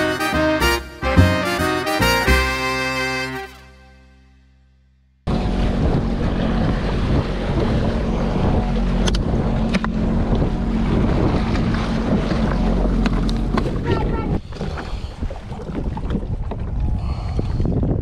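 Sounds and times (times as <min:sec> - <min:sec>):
jet ski idling hum: 0:05.3 - 0:14.5
waves washing: 0:05.3 - 0:16.3
wind buffeting microphone: 0:05.3 - 0:18.0.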